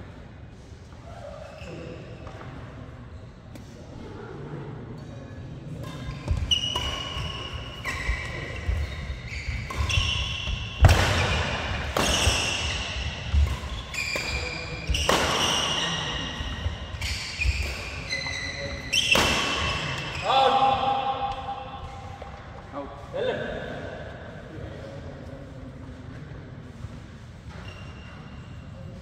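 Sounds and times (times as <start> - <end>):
racket hitting shuttlecock: 5.8 - 20.2
shoes squeaking on court: 5.8 - 20.3, 27.4 - 28.7.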